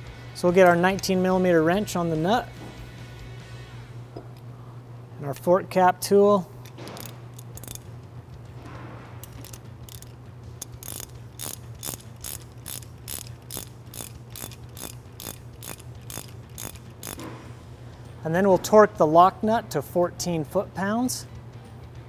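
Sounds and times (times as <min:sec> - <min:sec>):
ratchet wrench clicking: 0:06.6 - 0:07.9, 0:09.2 - 0:17.3.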